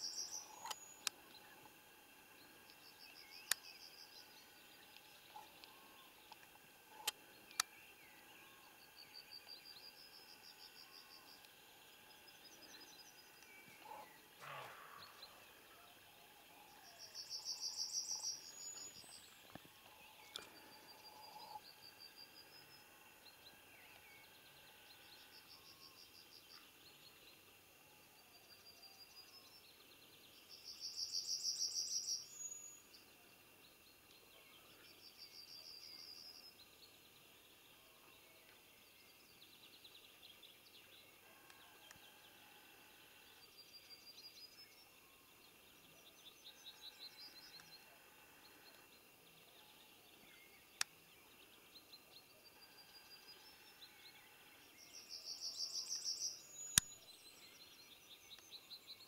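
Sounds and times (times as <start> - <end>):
songbirds singing trilled phrases: 0.0 - 27.6, 43.3 - 59.0.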